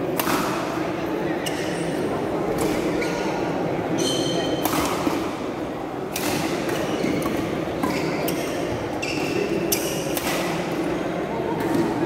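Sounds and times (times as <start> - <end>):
spectator chatter: 0.0 - 12.0
racket striking shuttlecock: 0.1 - 0.8, 4.5 - 5.4, 6.1 - 8.6, 9.3 - 10.8
shoes squeaking on court: 1.4 - 1.9, 2.6 - 4.7, 6.8 - 10.0.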